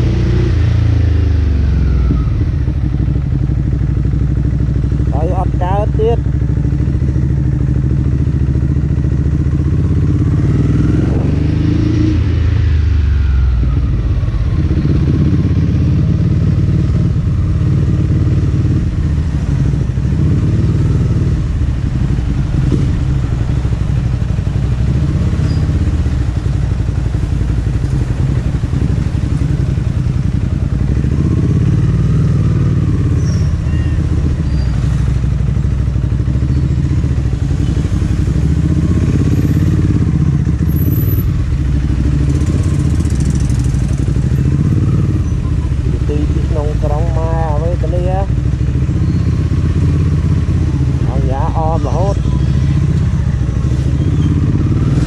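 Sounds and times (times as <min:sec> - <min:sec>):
engine revving: 0:00.0 - 0:03.0, 0:09.2 - 0:26.4, 0:36.5 - 0:55.0
motorcycle engine running: 0:00.0 - 0:55.0.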